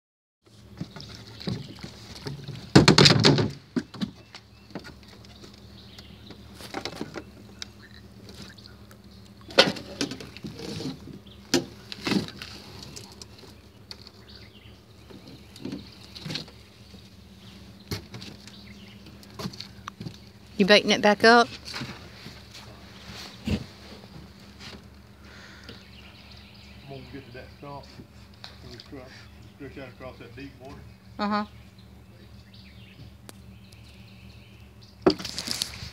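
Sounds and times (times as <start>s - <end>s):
steady low hum: 0.5s - 35.9s
fishing gear rattling on metal boat: 0.6s - 20.5s.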